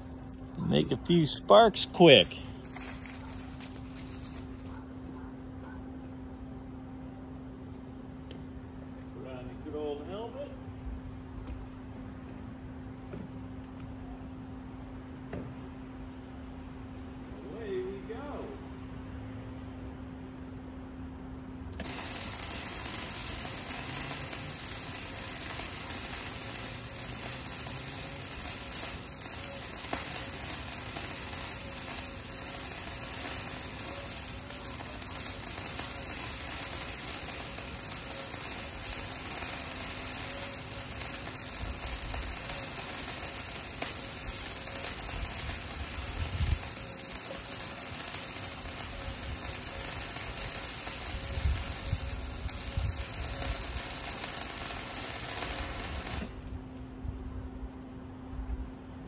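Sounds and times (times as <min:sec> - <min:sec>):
welding arc crackling: 0:00.7 - 0:04.8, 0:21.7 - 0:56.8.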